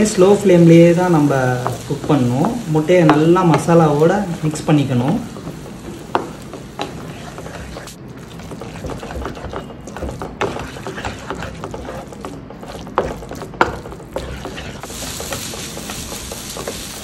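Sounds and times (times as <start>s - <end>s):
spatula scraping frying pan: 0.8s - 17.0s
spatula knocking pan: 1.5s - 7.8s, 8.4s - 17.0s
wet mixture squelching: 6.9s - 16.0s.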